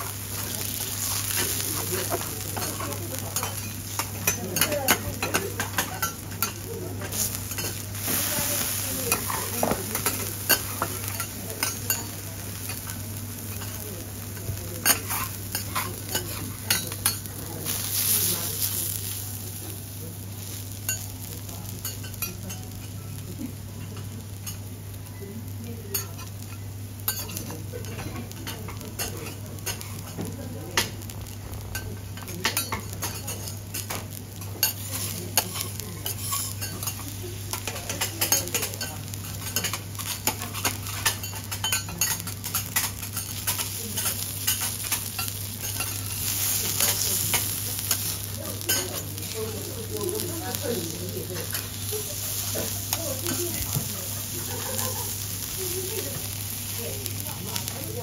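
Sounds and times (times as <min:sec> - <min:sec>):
food sizzling: 0:00.0 - 0:58.0
metal spatulas scraping griddle: 0:34.7 - 0:37.0.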